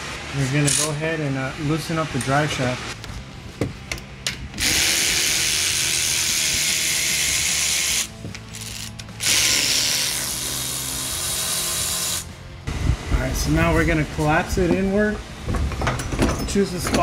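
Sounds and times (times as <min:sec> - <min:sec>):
electric ratchet running: 0:04.6 - 0:12.4.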